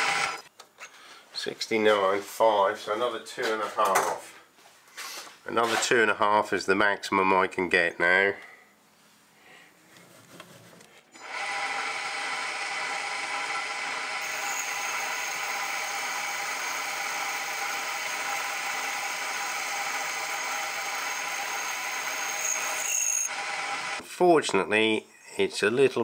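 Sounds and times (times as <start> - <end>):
lathe workpiece ringing whine: 11.2 - 24.0.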